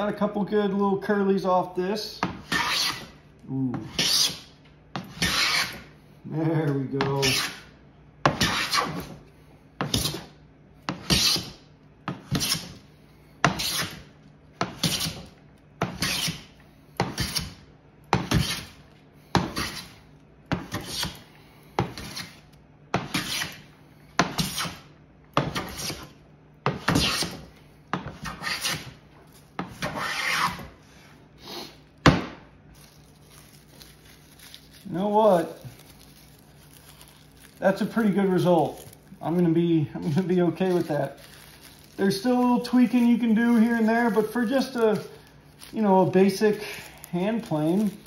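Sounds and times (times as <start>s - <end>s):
hand plane shearing wood: 2.5s - 3.1s, 5.1s - 5.8s, 7.2s - 7.6s, 11.0s - 11.5s, 12.3s - 12.7s, 13.5s - 14.0s, 15.9s - 16.4s, 19.4s - 19.9s, 20.6s - 21.2s, 23.0s - 23.6s, 25.5s - 26.1s, 26.8s - 27.4s, 28.1s - 28.9s, 29.6s - 30.6s.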